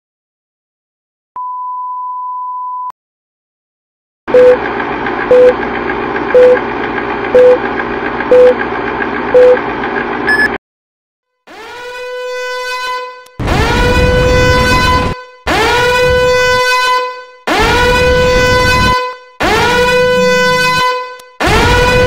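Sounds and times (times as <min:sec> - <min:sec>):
steady test tone beep: 0:04.4 - 0:04.6, 0:05.3 - 0:05.6, 0:06.4 - 0:06.6, 0:07.4 - 0:07.6, 0:08.3 - 0:08.6, 0:09.4 - 0:09.6, 0:10.3 - 0:10.6
film projector whir: 0:04.4 - 0:10.3
short loud beeps: 0:06.4 - 0:06.6, 0:07.4 - 0:07.6, 0:10.3 - 0:10.6
brief higher beep: 0:10.3 - 0:10.6.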